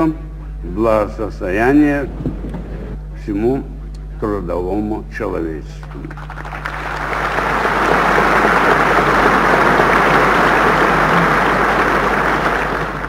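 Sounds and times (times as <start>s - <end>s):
large audience applauding: 5.9s - 13.0s.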